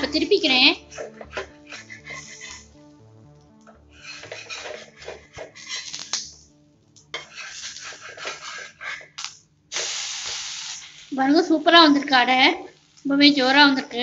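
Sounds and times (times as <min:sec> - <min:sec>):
spatula scraping hot pan: 0:00.8 - 0:02.8, 0:03.7 - 0:06.4, 0:07.1 - 0:11.3
spatula tapping pan: 0:00.9 - 0:02.6, 0:03.6 - 0:06.4, 0:07.0 - 0:09.1.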